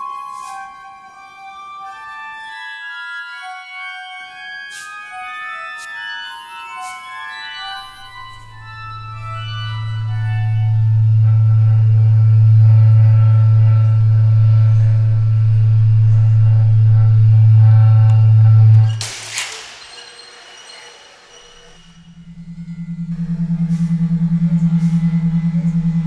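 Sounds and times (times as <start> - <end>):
sustained organ-like chords: 0.0 - 19.0, 21.2 - 26.0
loud low drone: 7.8 - 19.0, 21.8 - 26.0.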